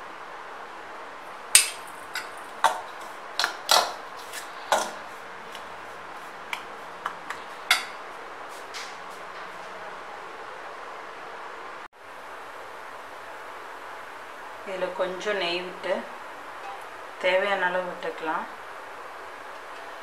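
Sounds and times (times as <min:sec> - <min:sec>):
spoon clinking against steel bowl: 0:07.7 - 0:08.0.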